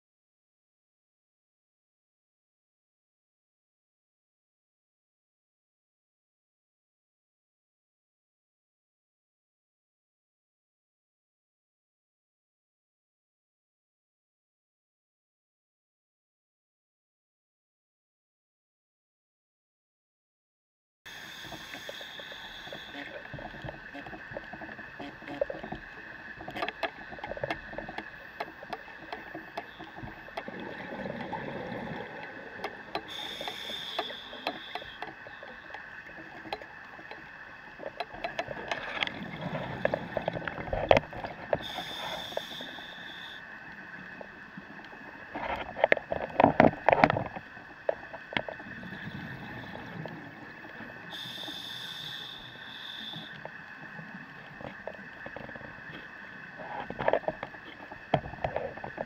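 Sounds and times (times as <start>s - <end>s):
diver breathing through regulator: 21.1s - 25.6s, 26.6s - 35.8s, 41.5s - 43.5s, 51.0s - 53.6s
small clicks: 21.4s - 43.3s.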